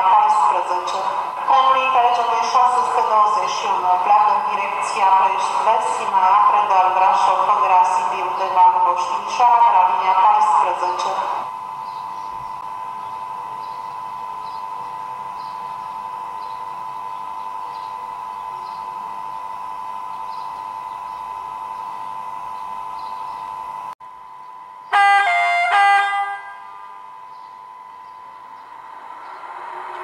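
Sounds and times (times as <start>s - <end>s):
electric locomotive hum: 0.0s - 30.0s
two-tone horn blast: 24.9s - 27.1s.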